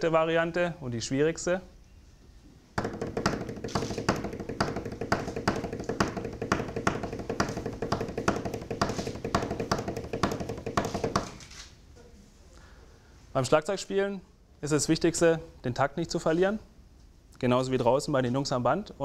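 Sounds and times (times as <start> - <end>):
hands drumming on a tabletop: 2.8 - 11.4.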